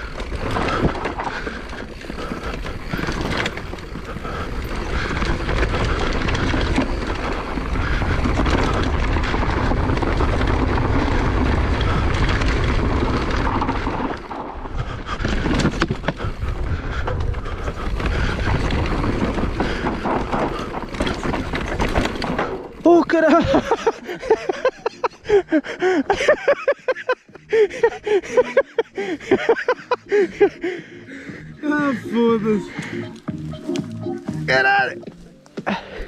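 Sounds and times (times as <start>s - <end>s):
bike clattering over bumps: 0.0s - 33.4s
tyres on dirt and stones: 0.0s - 36.0s.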